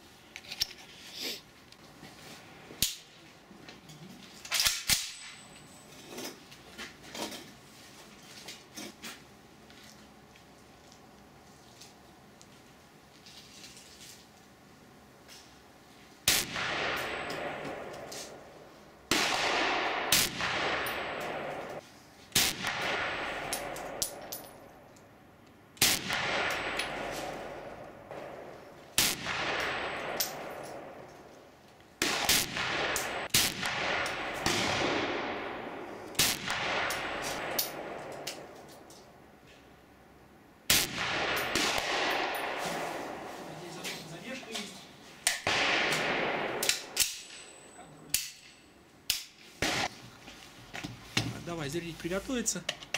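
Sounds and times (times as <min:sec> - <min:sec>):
rifle shots with long echo: 0:16.2 - 0:21.8, 0:22.4 - 0:24.8, 0:25.8 - 0:31.1, 0:32.0 - 0:38.6, 0:40.7 - 0:43.4, 0:45.2 - 0:47.5, 0:49.1 - 0:50.0
sharp metallic clangs: 0:46.6 - 0:49.4.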